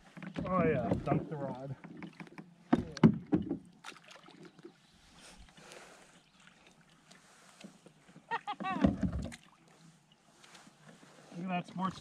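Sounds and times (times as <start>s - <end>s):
water splashes and knocks: 0.0s - 4.8s, 6.4s - 12.0s
soft hiss of water and wind: 3.7s - 12.0s.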